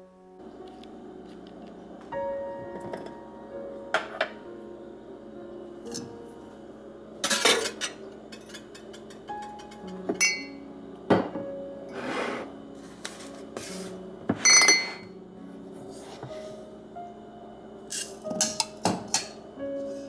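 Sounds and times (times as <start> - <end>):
soft background music: 0.0 - 20.0
kitchen utensils knocking and clinking: 7.2 - 11.4, 14.3 - 15.1, 18.4 - 19.4.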